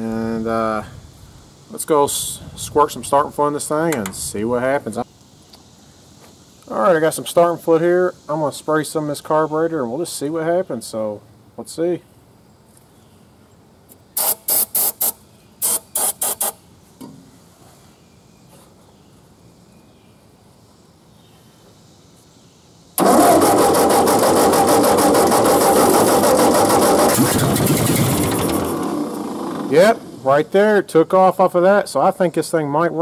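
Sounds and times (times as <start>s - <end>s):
aerosol can hissing: 14.2s - 16.6s
engine cranking on starter: 23.0s - 30.3s.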